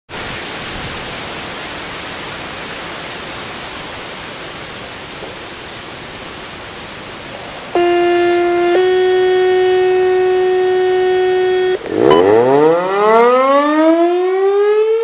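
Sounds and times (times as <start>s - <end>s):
steady rushing noise: 5.6s - 13.4s
siren steady pitched tone: 7.7s - 15.0s.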